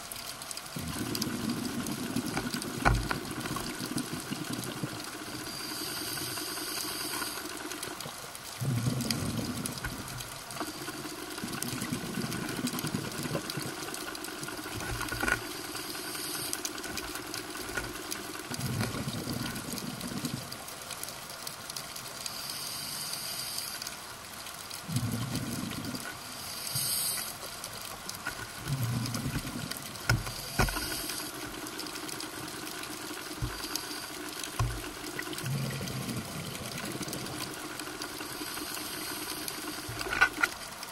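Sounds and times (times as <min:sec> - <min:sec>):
exhaled bubbles underwater: 0:00.7 - 0:20.7, 0:24.8 - 0:26.3, 0:28.1 - 0:40.4
regulator inhalation hiss: 0:05.4 - 0:07.5, 0:15.8 - 0:16.7, 0:22.3 - 0:23.8, 0:26.3 - 0:27.5.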